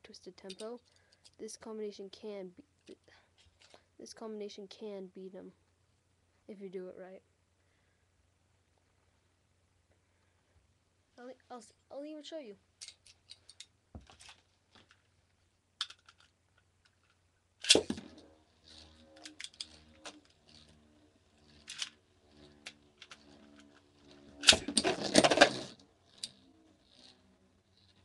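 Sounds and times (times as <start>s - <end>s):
spinning top launch: 17.6s - 28.0s
spinning top whirring: 17.6s - 28.0s.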